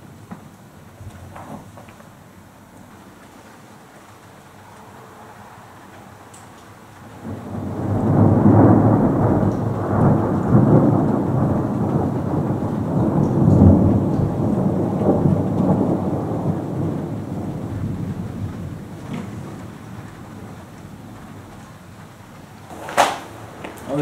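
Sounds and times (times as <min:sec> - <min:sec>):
rolling thunder: 0:07.0 - 0:24.0.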